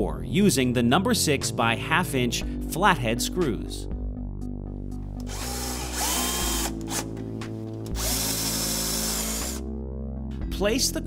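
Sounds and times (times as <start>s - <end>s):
cordless drill whirring: 5.2s - 7.2s, 7.9s - 9.6s.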